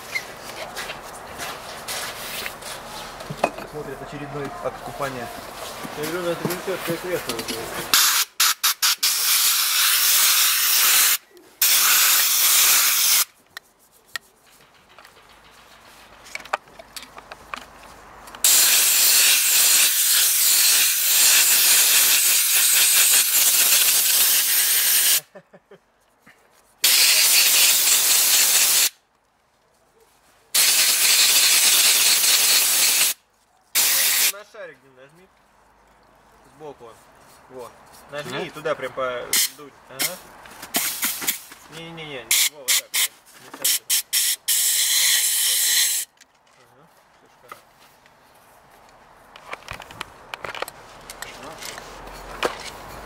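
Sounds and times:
spray wand hissing: 0:08.0 - 0:13.3, 0:26.8 - 0:28.9, 0:30.6 - 0:33.2, 0:33.8 - 0:34.3.

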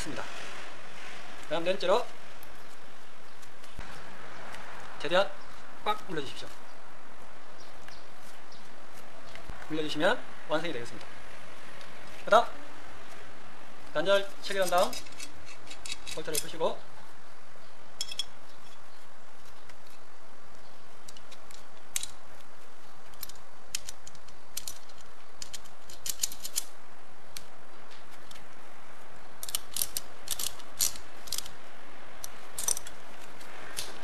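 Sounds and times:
small metallic clicks and clinks: 0:18.0 - 0:18.8, 0:23.1 - 0:26.7, 0:29.4 - 0:31.5, 0:32.2 - 0:33.0.

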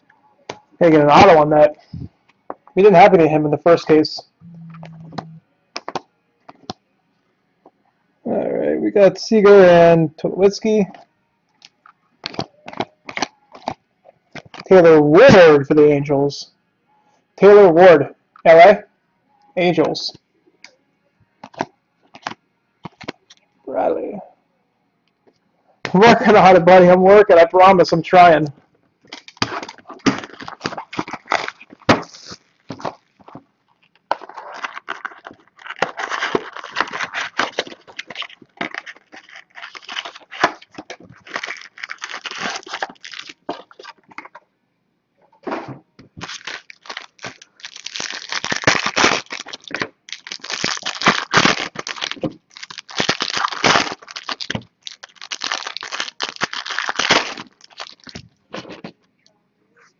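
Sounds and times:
foil wrappers crinkling and tearing: 0:11.6 - 0:14.7, 0:21.4 - 0:23.4, 0:29.1 - 0:44.3, 0:46.2 - 0:58.9.

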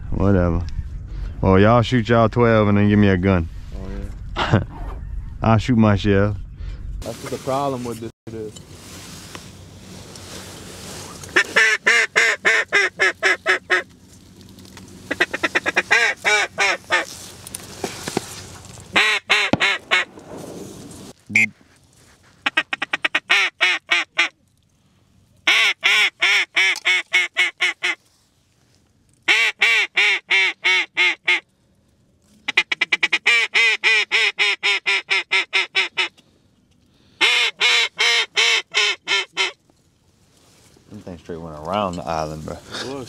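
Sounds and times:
duck call quacking: 0:11.3 - 0:13.9, 0:15.1 - 0:17.1, 0:19.0 - 0:20.1, 0:22.4 - 0:24.4, 0:25.4 - 0:28.0, 0:29.3 - 0:31.4, 0:32.5 - 0:36.2, 0:37.2 - 0:39.6.

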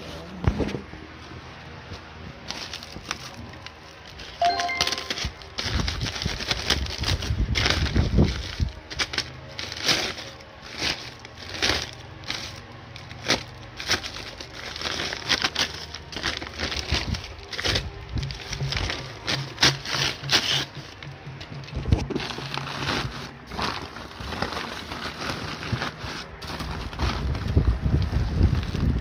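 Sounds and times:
paper sack crinkling: 0:02.4 - 0:29.0
plastic wrapping rustling: 0:02.4 - 0:29.0.

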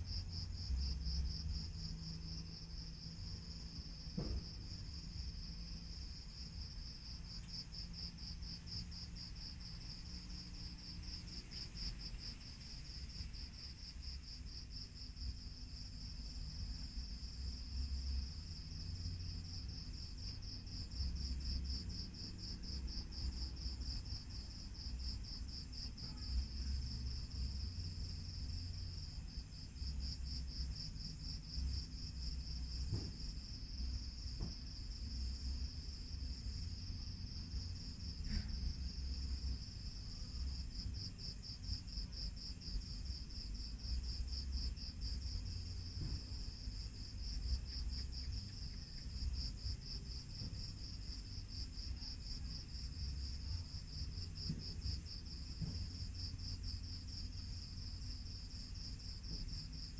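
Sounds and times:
crickets chirping: 0:00.0 - 0:59.9.

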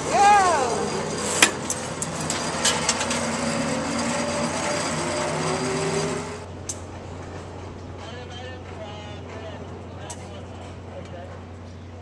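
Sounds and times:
zipline trolley whine: 0:00.0 - 0:12.0.

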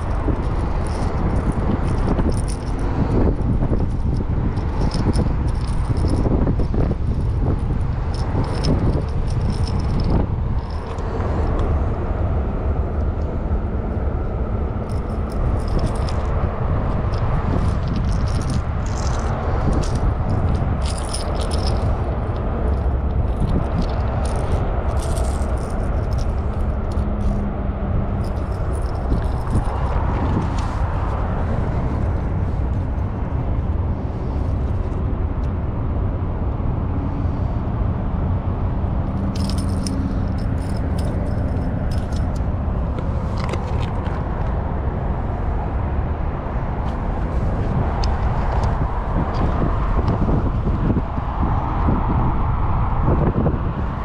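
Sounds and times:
fishing gear rattling and clicking: 0:00.0 - 0:11.7, 0:14.7 - 0:27.5, 0:28.1 - 0:35.1, 0:39.1 - 0:44.6, 0:46.8 - 0:48.9
steady low rumble: 0:00.0 - 0:54.0.

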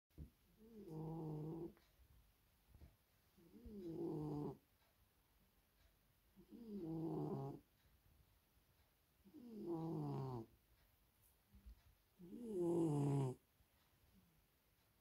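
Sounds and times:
cat snoring loudly: 0:00.6 - 0:01.8, 0:03.5 - 0:04.6, 0:06.4 - 0:07.6, 0:09.3 - 0:10.5, 0:12.2 - 0:13.4.

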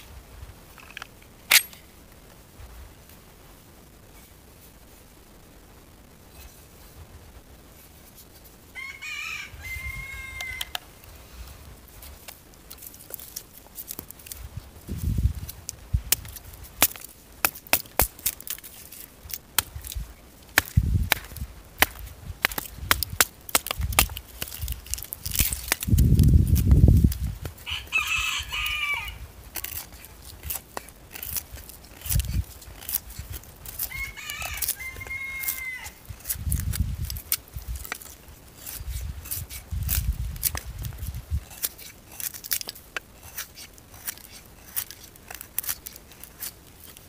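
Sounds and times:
bird crowing call: 0:08.8 - 0:10.8, 0:27.6 - 0:29.2, 0:33.9 - 0:36.0
knife cutting dry wood: 0:12.0 - 0:47.0.

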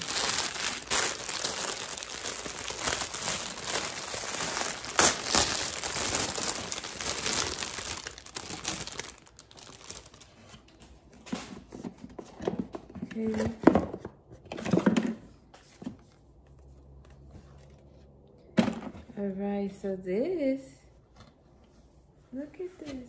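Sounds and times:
packaging crinkling: 0:00.0 - 0:10.7.

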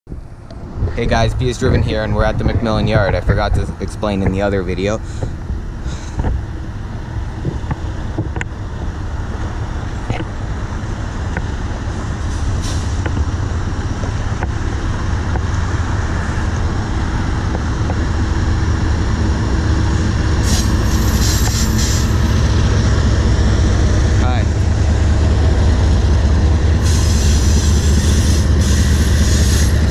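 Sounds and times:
diesel locomotive engines rumbling: 0:00.1 - 0:29.9
high-pitched hiss: 0:26.8 - 0:29.9.

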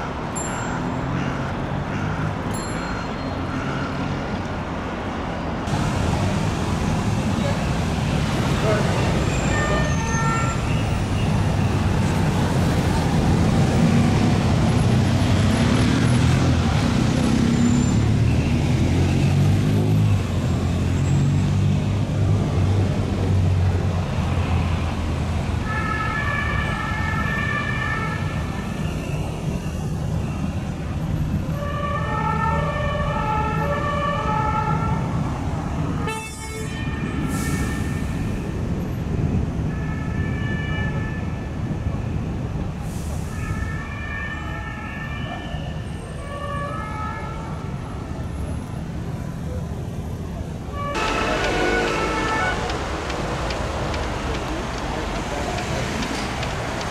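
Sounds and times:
heavy city traffic rumbling: 0:00.0 - 0:56.9
ambulance siren: 0:31.6 - 0:35.2, 0:43.3 - 0:47.7, 0:50.8 - 0:55.4.

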